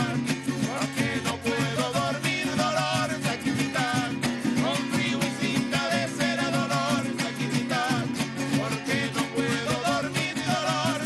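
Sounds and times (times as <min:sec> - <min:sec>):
men singing together: 0:00.0 - 0:11.0
strummed small guitars: 0:00.0 - 0:11.0.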